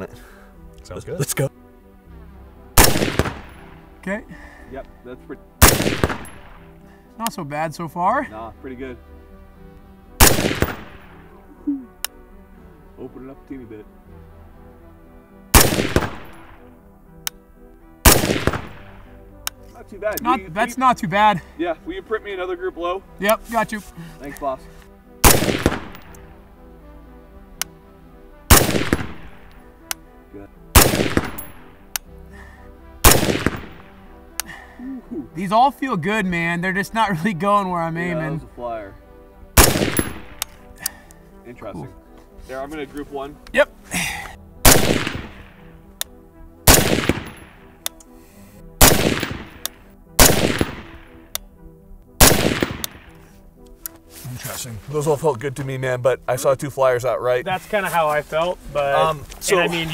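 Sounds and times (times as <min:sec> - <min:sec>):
rifle shots ringing out: 0:02.8 - 0:03.7, 0:05.6 - 0:06.6, 0:10.2 - 0:11.2, 0:15.5 - 0:16.6, 0:18.0 - 0:19.1, 0:25.2 - 0:26.2, 0:28.5 - 0:29.5, 0:30.8 - 0:31.8, 0:33.0 - 0:34.0, 0:39.6 - 0:40.5, 0:44.6 - 0:45.6, 0:46.7 - 0:47.6, 0:48.8 - 0:49.6, 0:50.2 - 0:51.2, 0:52.2 - 0:53.2.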